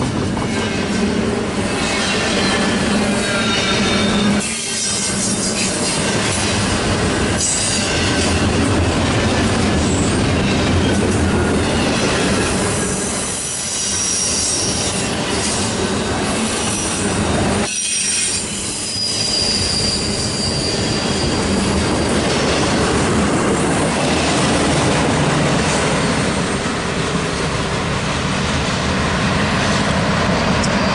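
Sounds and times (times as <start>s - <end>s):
train wheels rumbling and clacking: 0.0s - 30.9s
high wheel squeal: 1.6s - 6.6s, 11.6s - 22.4s.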